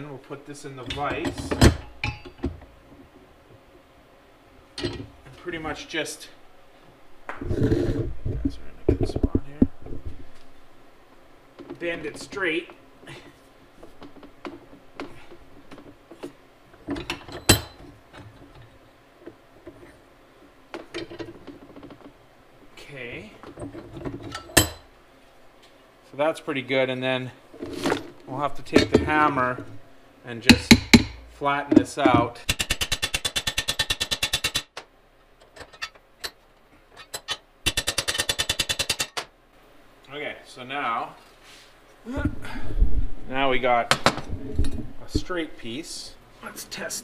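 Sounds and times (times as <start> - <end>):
metal clicks and knocks: 4.8 - 5.1, 30.5 - 39.3
hammer striking steel: 30.5 - 31.3.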